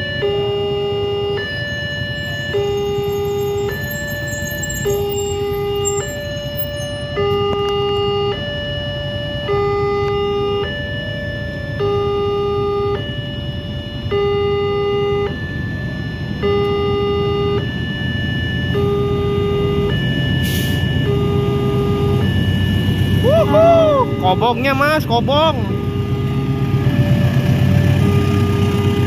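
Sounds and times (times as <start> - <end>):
level crossing two-tone alarm: 0.0 - 29.0
motorcycle engines idling: 1.6 - 6.9.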